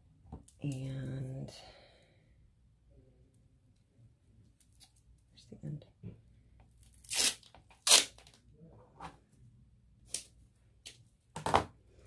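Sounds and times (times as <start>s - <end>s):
tape peeling off roll: 7.0s - 8.4s.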